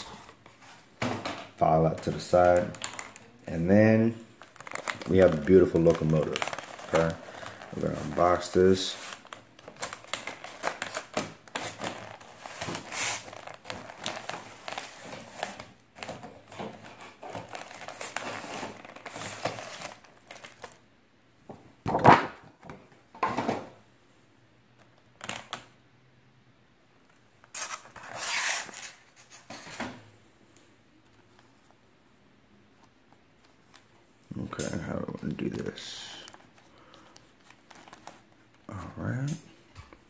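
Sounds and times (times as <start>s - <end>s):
plastic packaging crinkling: 1.6s - 20.8s, 27.4s - 29.7s, 33.4s - 39.3s.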